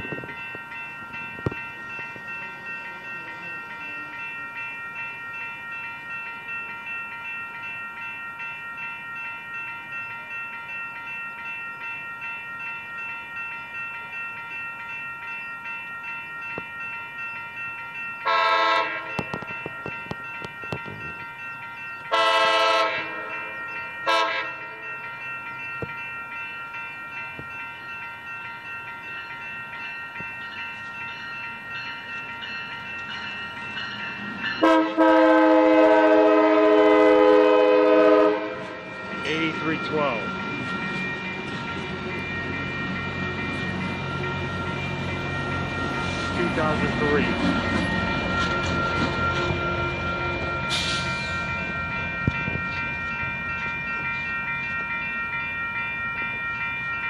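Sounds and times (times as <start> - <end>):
steady high ringing tone: 0.0 - 57.0
train horn blasts: 18.3 - 19.2, 22.1 - 23.3, 24.1 - 24.6, 34.6 - 38.8.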